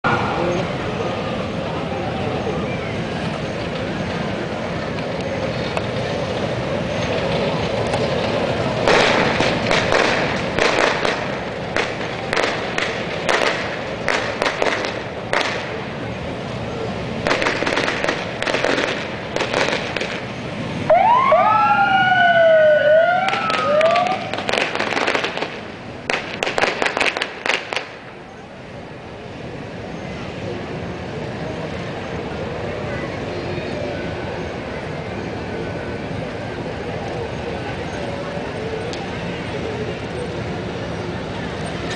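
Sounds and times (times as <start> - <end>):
crowd noise: 0.0 - 20.9, 22.4 - 41.9
police sirens wailing: 0.0 - 41.9
sharp bangs: 8.8 - 15.8, 17.2 - 20.3, 23.2 - 28.0.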